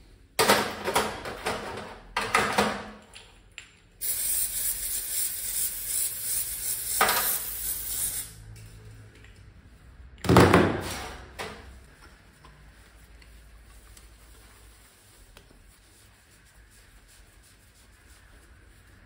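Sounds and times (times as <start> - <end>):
spraying hiss: 4.0 - 8.4.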